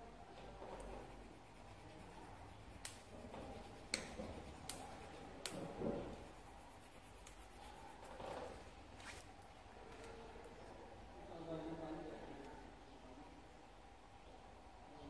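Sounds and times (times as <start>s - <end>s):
soft rustle: 0.4s - 10.4s.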